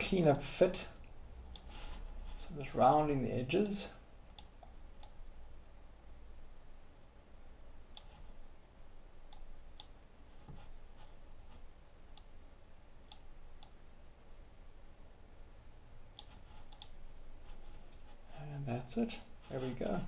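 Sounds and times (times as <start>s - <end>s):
faint low hum: 0.0s - 20.0s
computer mouse clicking: 3.6s - 5.2s, 7.9s - 8.3s, 9.3s - 10.7s, 13.1s - 13.8s, 16.2s - 17.0s.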